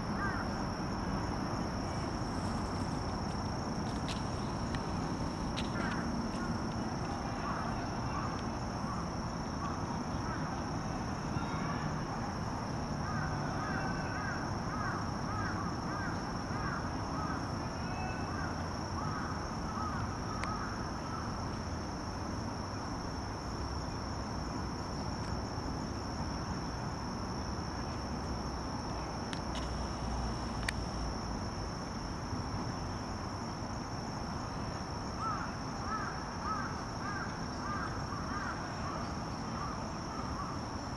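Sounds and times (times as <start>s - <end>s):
insects trilling: 0.0s - 40.9s.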